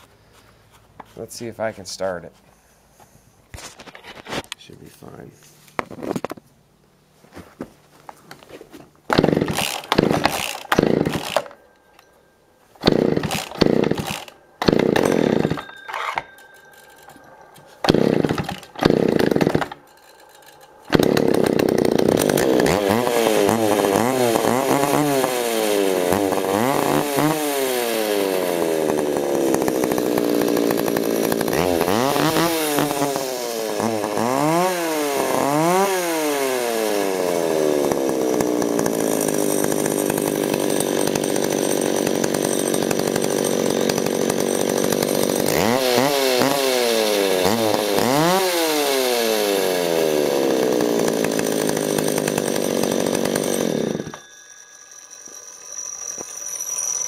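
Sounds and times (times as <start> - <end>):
chainsaw engine revving: 9.1 - 11.6, 12.8 - 16.3, 17.8 - 54.3.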